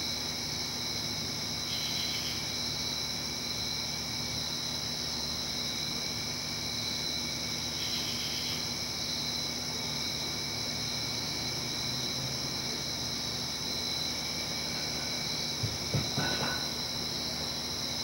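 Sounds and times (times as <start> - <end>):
crickets trilling: 0.0 - 18.0
insect call: 0.0 - 18.0.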